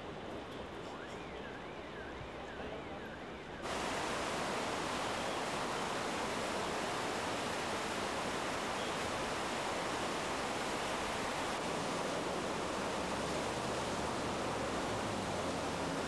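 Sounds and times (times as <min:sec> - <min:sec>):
softer water noise: 0:02.0 - 0:16.0
floodwater rushing: 0:03.6 - 0:16.0.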